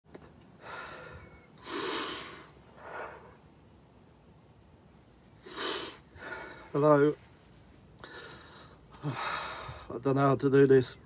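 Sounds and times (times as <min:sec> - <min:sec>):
man crying and sniffling: 0:00.6 - 0:03.4, 0:05.4 - 0:06.8, 0:08.0 - 0:09.9.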